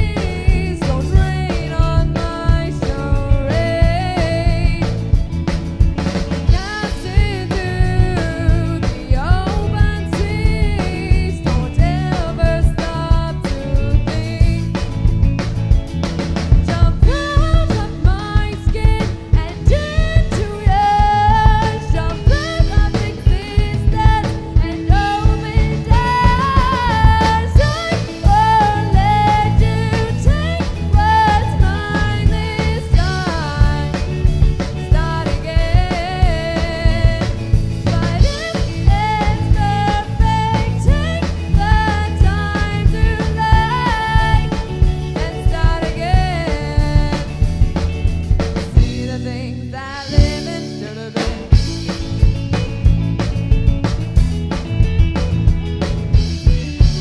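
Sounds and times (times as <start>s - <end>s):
drum kit beat: 0.0s - 57.0s
guitar: 0.0s - 57.0s
rock band playing live: 0.0s - 57.0s
person singing: 16.7s - 47.5s, 48.8s - 51.7s.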